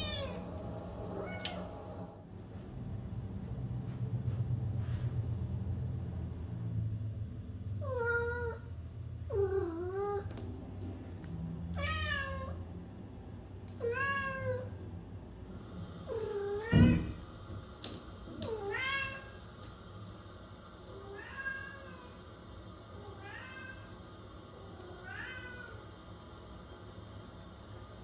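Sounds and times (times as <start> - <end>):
cat meowing: 0.0 - 0.4, 11.7 - 12.6, 13.8 - 14.7, 18.5 - 19.3
sharp thump: 16.7 - 17.2.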